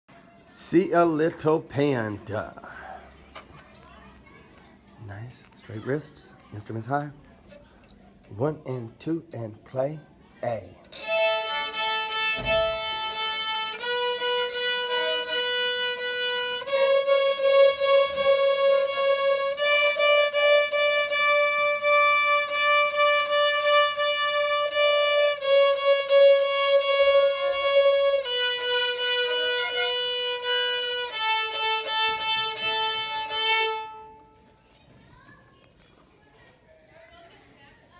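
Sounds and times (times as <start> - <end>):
violins playing in unison: 10.9 - 34.2.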